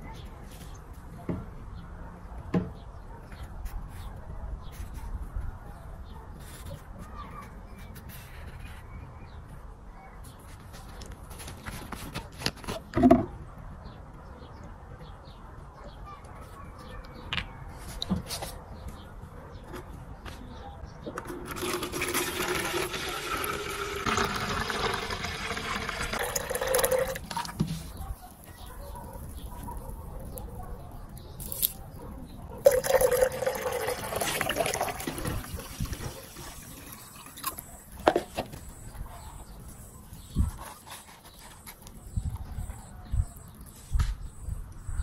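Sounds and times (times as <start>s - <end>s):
liquid pouring into plastic jar: 21.3s - 27.7s, 32.6s - 38.3s
water poured from scoop: 21.5s - 27.7s, 32.7s - 37.6s.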